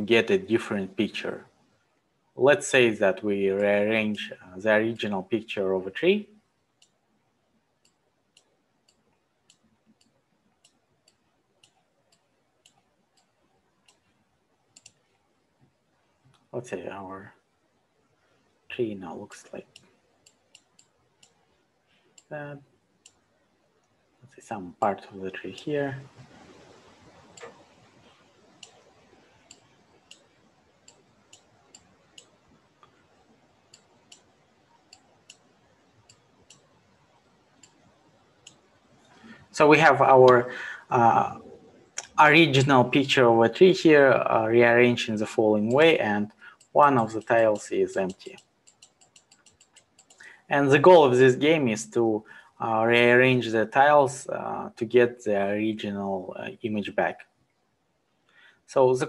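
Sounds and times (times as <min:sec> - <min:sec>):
faint sharp clicks: 0:07.8 - 0:14.1, 0:14.7 - 0:16.5, 0:19.4 - 0:22.3, 0:23.8 - 0:39.5, 0:41.8 - 0:42.8, 0:45.6 - 0:50.5.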